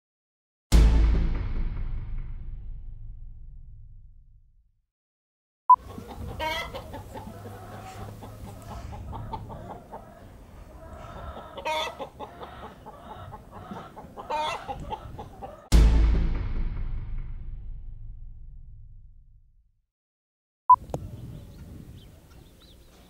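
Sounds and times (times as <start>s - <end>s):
sudden loud hit: 0.7s - 4.5s, 15.7s - 19.5s
hens clucking: 5.7s - 15.7s.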